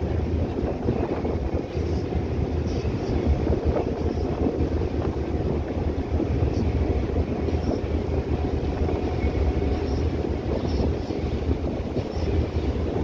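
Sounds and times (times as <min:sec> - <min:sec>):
ferry engine low rumble: 0:00.0 - 0:13.0
wind buffeting microphone: 0:00.0 - 0:13.0.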